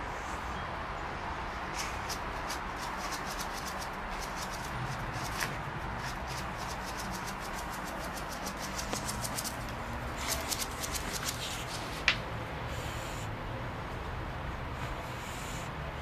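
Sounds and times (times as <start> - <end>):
dog claws scratching wall: 1.8 - 12.2.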